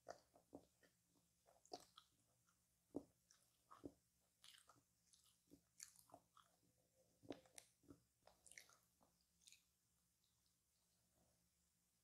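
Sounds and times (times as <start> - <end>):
person chewing: 0.0 - 6.6, 7.2 - 9.7.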